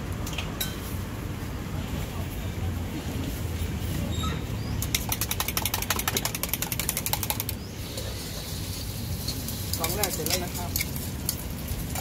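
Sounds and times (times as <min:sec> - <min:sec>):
eggs beaten in a metal cup: 0:04.9 - 0:07.6.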